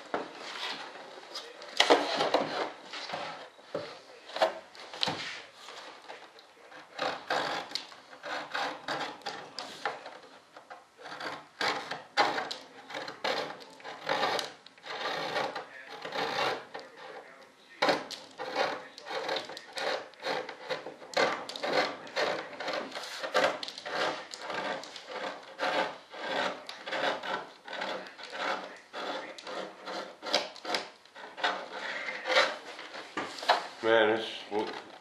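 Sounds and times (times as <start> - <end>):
hand-sanding rasping strokes: 6.8 - 9.8, 11.1 - 17.2, 17.8 - 35.0.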